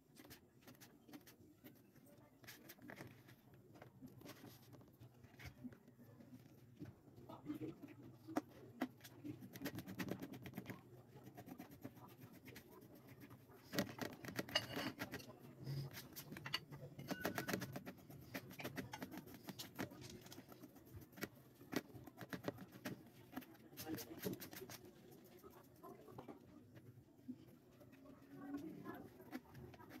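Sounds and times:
knife chopping on plastic board: 17.0s - 19.9s.

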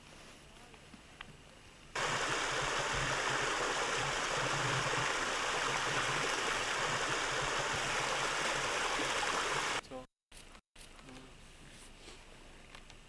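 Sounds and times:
stream rushing over rocks: 2.0s - 9.8s.

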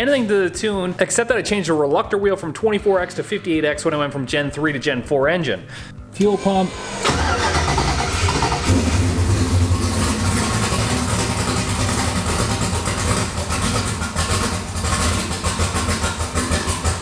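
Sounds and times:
car engine idling choppily: 7.0s - 17.0s.

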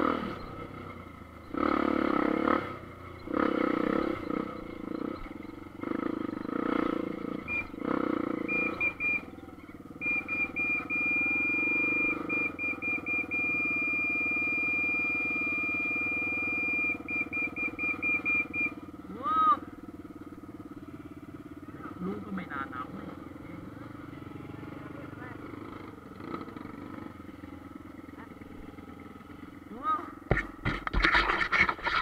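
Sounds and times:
motorcycle engine revving: 0.0s - 32.0s
thin high beeping tone: 10.0s - 18.8s.

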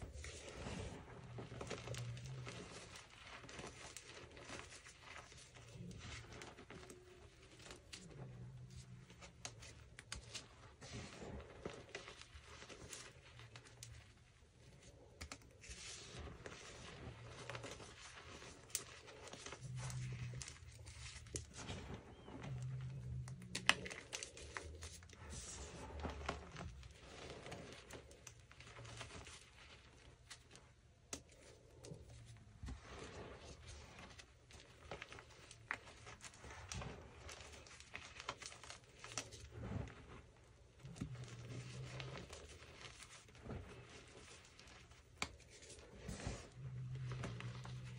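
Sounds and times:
hands crushing powdered chalk: 0.0s - 47.9s.

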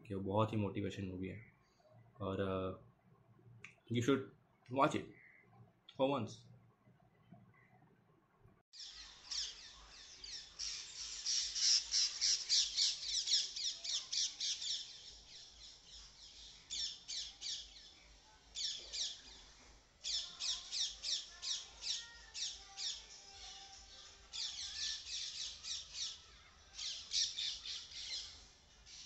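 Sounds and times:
parakeet squawking: 8.8s - 15.4s, 20.0s - 23.0s.

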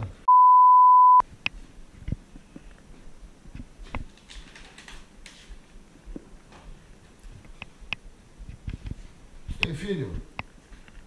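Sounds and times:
censor bleep: 0.3s - 1.2s.

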